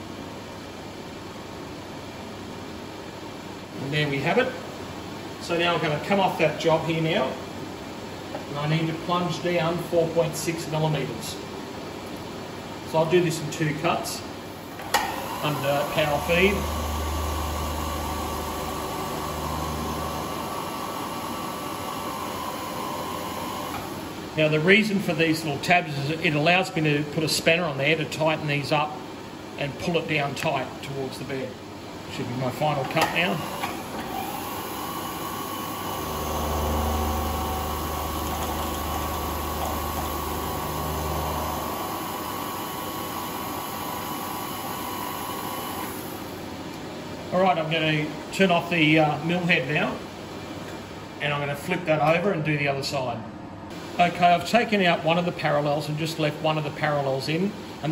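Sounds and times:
milling machine cutting metal: 14.8s - 23.9s, 33.2s - 46.2s.

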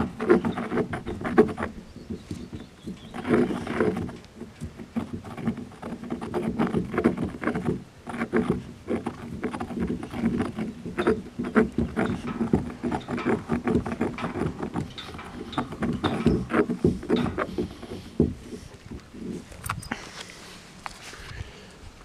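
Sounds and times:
stone pestle grinding in mortar: 0.0s - 19.4s.

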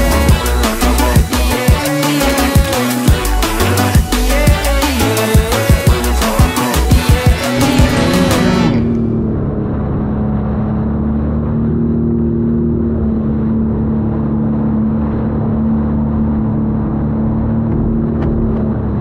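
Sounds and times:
jet ski engine running: 0.0s - 10.6s.

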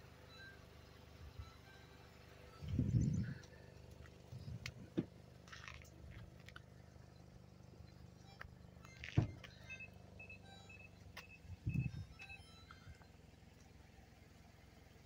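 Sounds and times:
car engine idling: 0.0s - 15.0s
short high beeps: 8.9s - 13.0s
thump: 9.1s - 9.4s.

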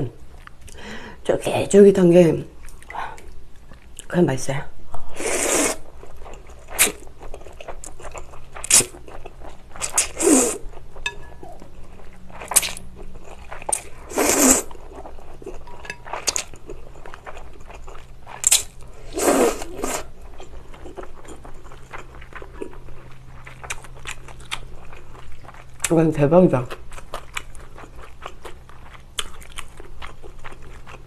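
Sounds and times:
chewing: 0.3s - 0.8s, 5.9s - 26.0s, 26.6s - 31.0s
slurping noodles: 5.2s - 5.8s, 9.8s - 10.6s, 14.0s - 14.8s, 19.0s - 20.1s.

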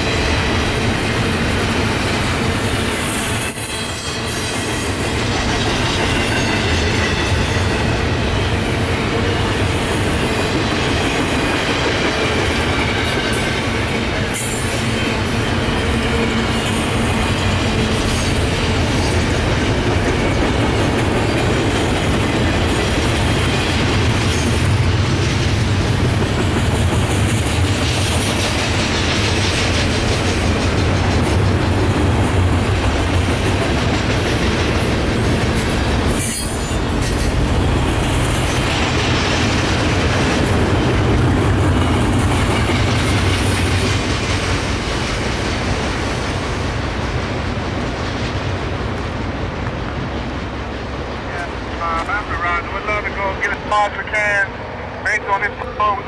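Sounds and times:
train wheels clattering over rail joints: 10.2s - 50.0s.

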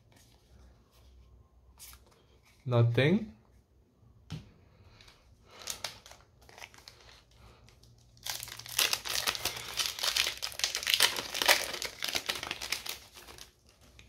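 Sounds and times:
wrapper crinkling and tearing: 5.5s - 14.0s.

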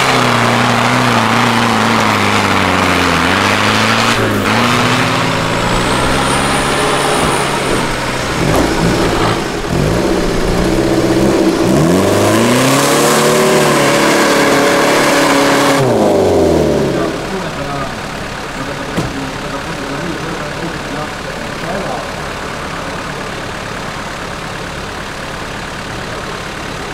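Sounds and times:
engines revving hard: 0.0s - 26.9s.

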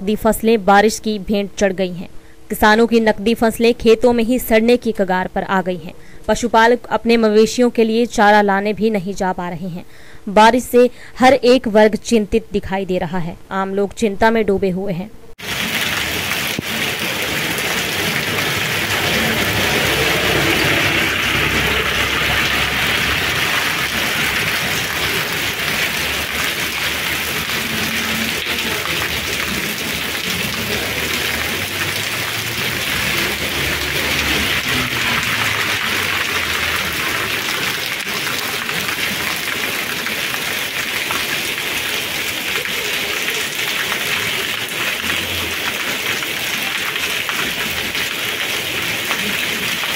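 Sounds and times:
rain on wet pavement: 15.4s - 49.9s.

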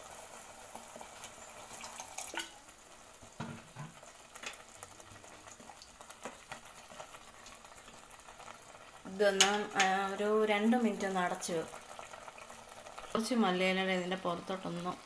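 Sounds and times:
faint hiss: 0.0s - 15.0s
water poured into thick gravy: 1.0s - 2.6s.

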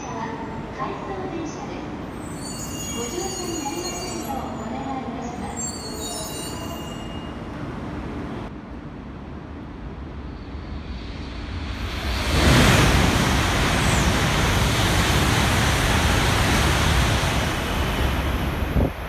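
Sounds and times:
high-speed train passing: 4.2s - 19.0s.

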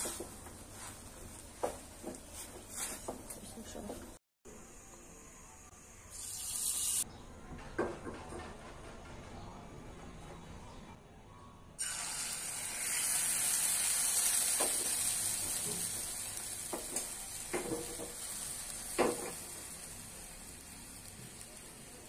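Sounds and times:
liquid sizzling in hot pan: 6.1s - 7.0s, 11.8s - 22.0s
bubbling mixture hissing: 11.8s - 22.0s.

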